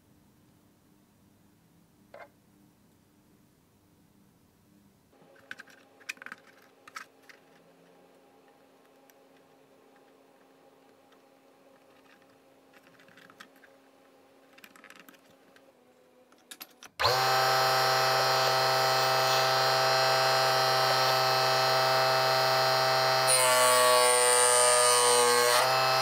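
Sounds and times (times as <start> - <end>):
faint clicks and knocks: 5.2 - 13.8
saw motor whining: 17.0 - 26.0.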